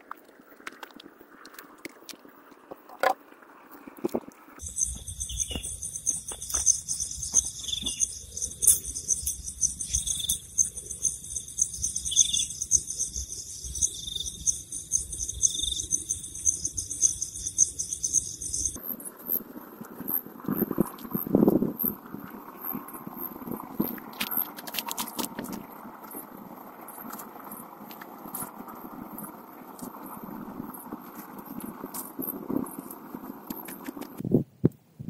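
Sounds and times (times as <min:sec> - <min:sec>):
crickets trilling: 0:04.6 - 0:19.2.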